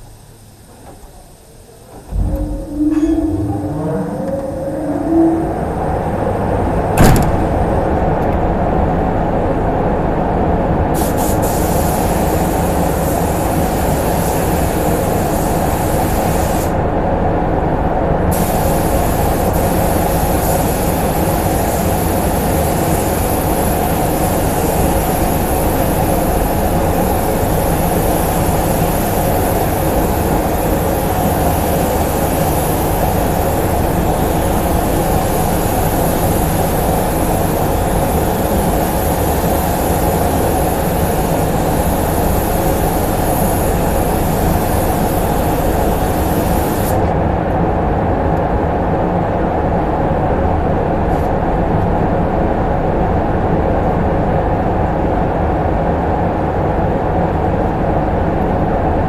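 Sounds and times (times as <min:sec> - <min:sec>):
ventilation running: 0:00.0 - 0:59.0
sharp knock: 0:07.0 - 0:07.6
spray gun air hiss: 0:11.0 - 0:16.8, 0:18.3 - 0:47.2.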